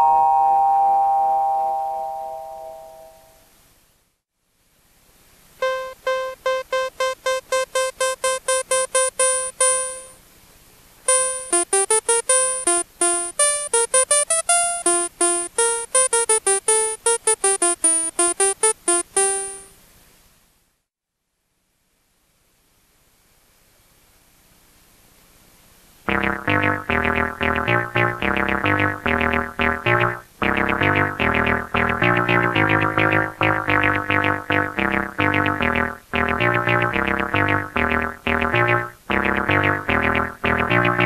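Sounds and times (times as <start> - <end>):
ring-modulated synth bell tone: 0.0 - 3.4, 5.6 - 10.2, 11.1 - 19.7
staccato synth clav notes: 5.6 - 10.2, 11.1 - 19.7, 26.1 - 41.0.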